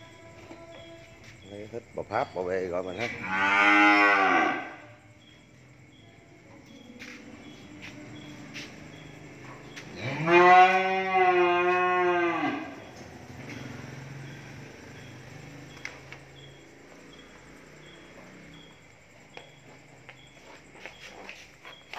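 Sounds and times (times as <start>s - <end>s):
cow mooing: 3.0s - 4.9s, 10.0s - 12.8s.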